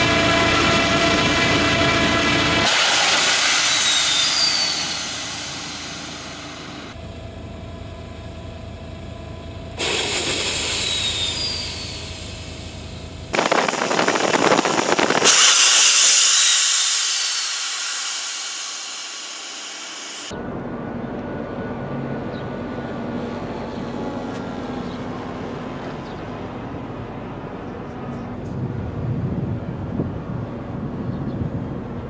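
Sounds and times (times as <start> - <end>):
drone catapult launch hiss: 2.6 - 7.0, 9.8 - 12.7, 13.4 - 20.3
high hiss: 2.6 - 7.0, 9.8 - 20.3.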